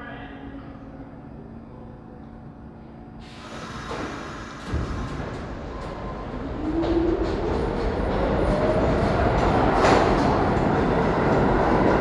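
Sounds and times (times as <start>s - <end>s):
subway train motors whining: 0.3s - 12.0s
steel wheels rumbling on rails: 3.5s - 12.0s.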